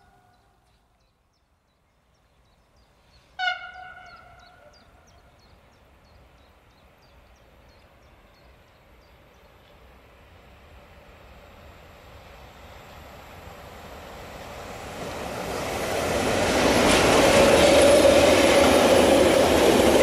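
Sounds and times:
train running noise: 0:03.0 - 0:20.0
locomotive horn blast: 0:03.4 - 0:04.7.

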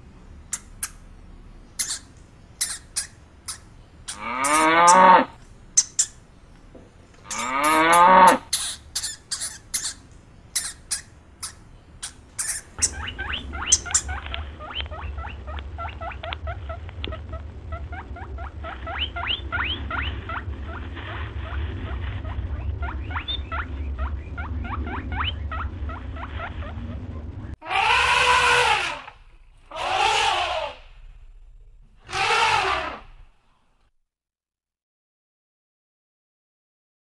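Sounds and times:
low rumble: 0:00.0 - 0:33.8
small animal squeaking: 0:01.8 - 0:05.1, 0:05.8 - 0:06.2, 0:07.3 - 0:20.8
cow mooing: 0:04.2 - 0:05.4, 0:07.3 - 0:08.4.

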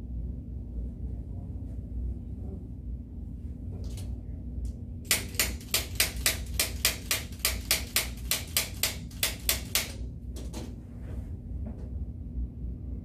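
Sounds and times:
spring-loaded instrument clicks: 0:05.1 - 0:10.0.

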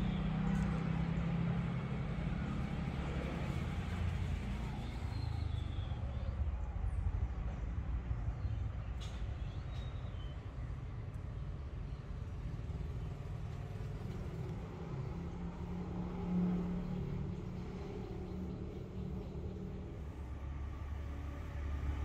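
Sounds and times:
vehicle engine rumble: 0:00.0 - 0:22.0.

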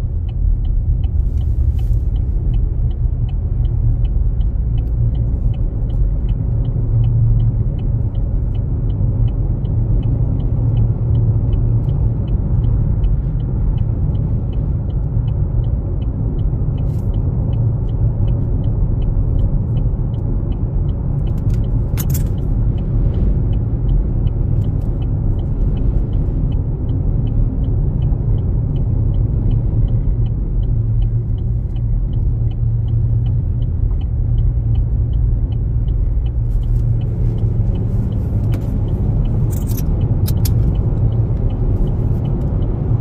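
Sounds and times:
car driving rumble: 0:00.0 - 0:43.0
faint regular ticking: 0:00.0 - 0:43.0
sharp clicks: 0:16.0 - 0:43.0.

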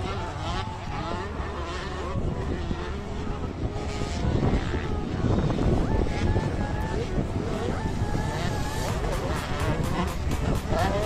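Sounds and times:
motorcycle engines revving: 0:00.0 - 0:11.0.

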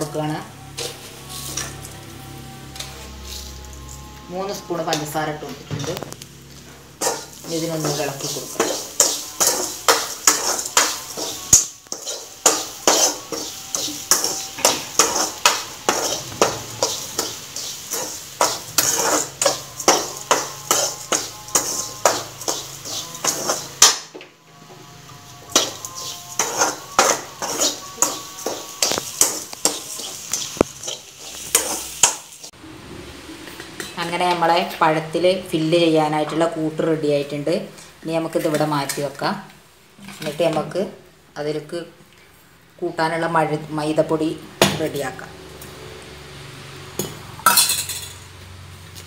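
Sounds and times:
metal spoon scraping metal pan: 0:06.9 - 0:24.1, 0:25.3 - 0:32.5.

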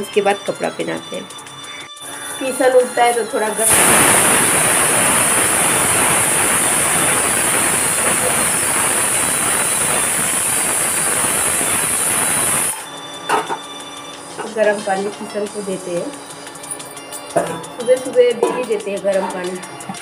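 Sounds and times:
pressure cooker steam hissing: 0:02.0 - 0:13.5.

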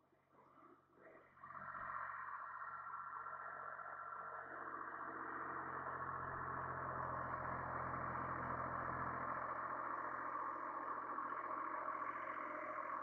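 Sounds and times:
diesel tractor running: 0:03.7 - 0:13.0.

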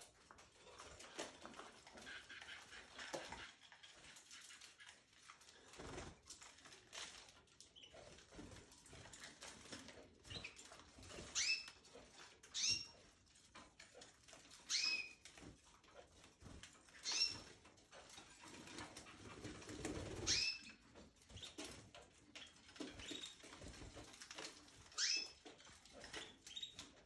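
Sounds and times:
birds scratching in cage: 0:00.1 - 0:27.0
birds chirping: 0:10.2 - 0:13.1, 0:14.4 - 0:15.3, 0:16.8 - 0:19.2, 0:20.0 - 0:21.7, 0:22.3 - 0:23.5, 0:24.8 - 0:27.0.

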